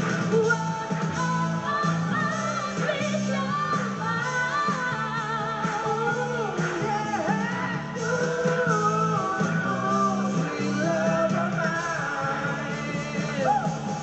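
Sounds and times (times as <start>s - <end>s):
acoustic guitar: 0.0s - 14.0s
band accompaniment: 0.0s - 14.0s
woman singing: 0.3s - 13.9s.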